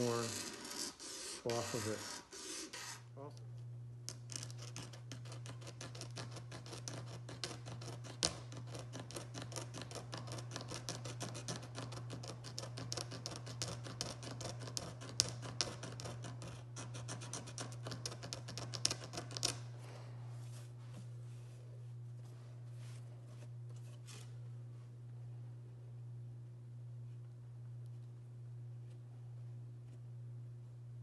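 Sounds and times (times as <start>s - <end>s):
razor blade scraping guitar binding: 0.0s - 3.0s
steady low hum: 0.0s - 31.0s.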